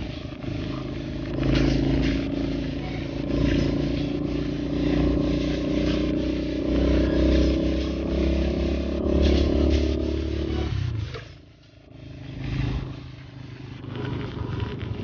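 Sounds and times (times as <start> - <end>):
tyres hissing on wet road: 0.0 - 15.0
vehicle engine running: 0.0 - 15.0.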